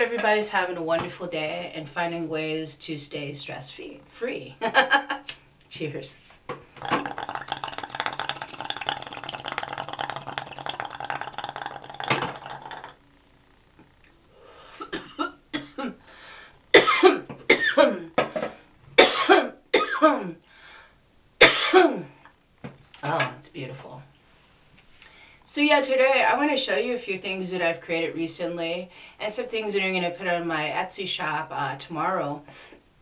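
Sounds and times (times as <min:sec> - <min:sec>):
water bubbling in a bong: 0:06.7 - 0:13.0
woman coughing harshly: 0:14.8 - 0:16.0, 0:16.8 - 0:18.1, 0:19.0 - 0:20.3, 0:21.4 - 0:22.1.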